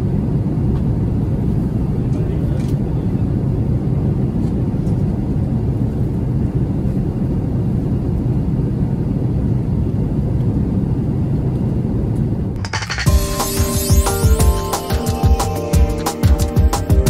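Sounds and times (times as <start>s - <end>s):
airplane cabin engine rumble: 0.0s - 12.6s.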